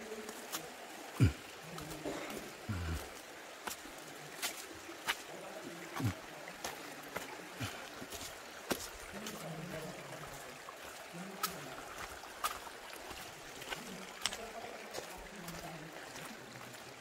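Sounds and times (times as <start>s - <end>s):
footsteps on rock and water: 0.0s - 17.0s
light water sounds: 0.0s - 17.0s.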